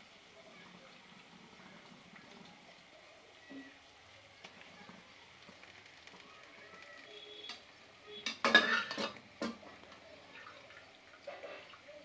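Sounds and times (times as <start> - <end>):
utensils scraping frying pan: 8.2 - 9.7.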